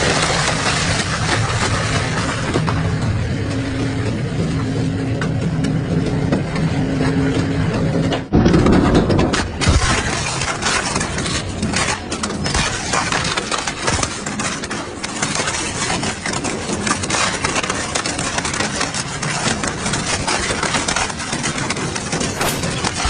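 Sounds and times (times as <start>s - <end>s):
shredder crunching plastic: 8.4s - 23.0s.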